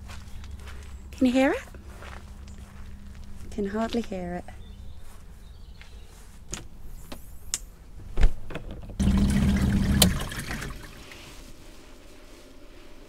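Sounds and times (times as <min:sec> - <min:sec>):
washing machine motor running: 0:09.0 - 0:11.0
water sloshing in a tub: 0:09.0 - 0:11.6.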